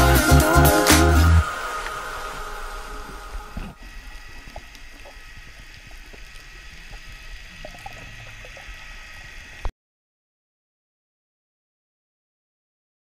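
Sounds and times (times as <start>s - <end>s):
underwater water hiss: 0.0s - 9.7s
soft clicks underwater: 3.6s - 9.7s.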